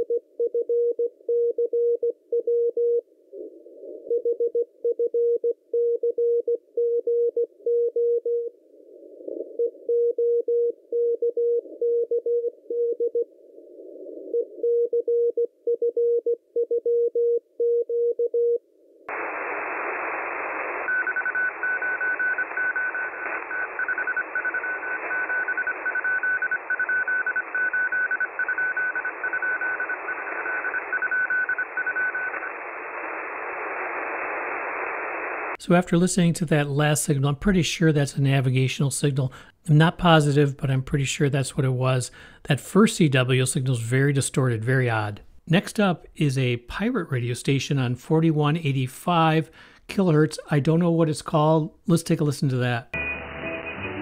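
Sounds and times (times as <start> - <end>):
radio band hiss: 19.1 - 25.9
morse code keyed tone: 20.9 - 32.6, 53.0 - 54.0
higher keyed morse tone: 53.0 - 54.0.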